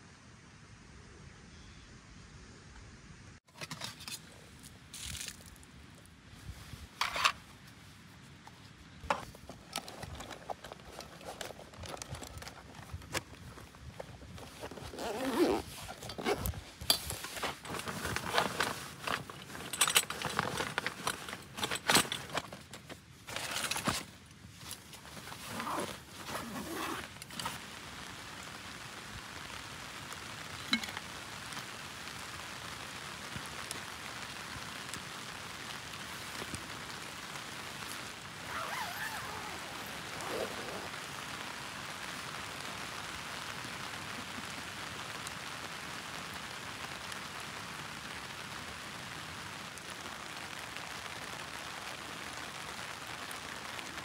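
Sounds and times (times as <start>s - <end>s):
light rain on tent: 2.0s - 54.0s
rustling: 3.5s - 28.5s, 33.0s - 41.6s.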